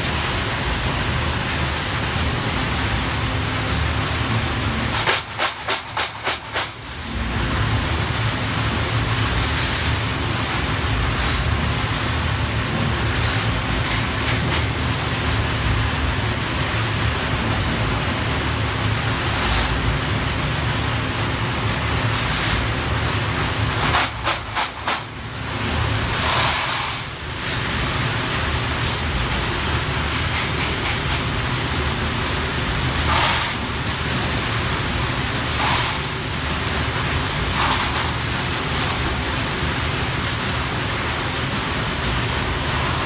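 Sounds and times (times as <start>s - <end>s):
steady hiss: 8.8s - 43.0s
metal shells rattling in plastic basket: 37.5s - 39.6s.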